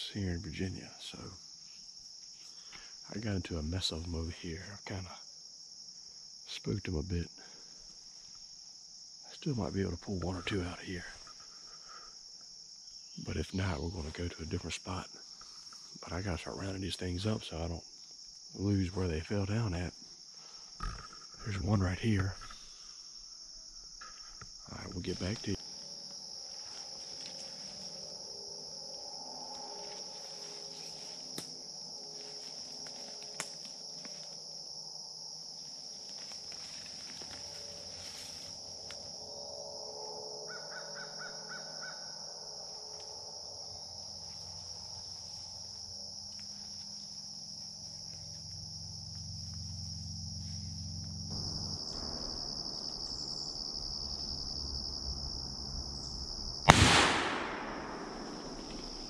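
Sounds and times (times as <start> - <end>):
insects droning: 0.0 - 59.0
crows cawing: 40.5 - 42.1.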